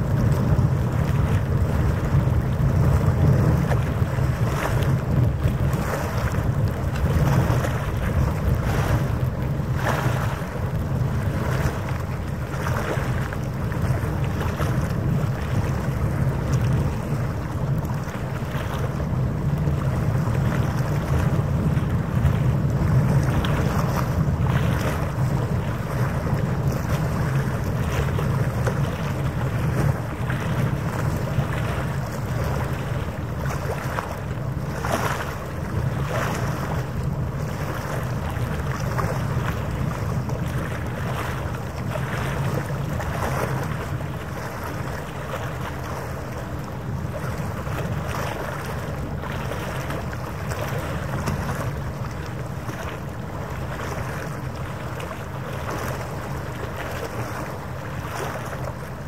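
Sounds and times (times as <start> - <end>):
water noise: 0.0 - 59.0
wind buffeting microphone: 0.0 - 59.0.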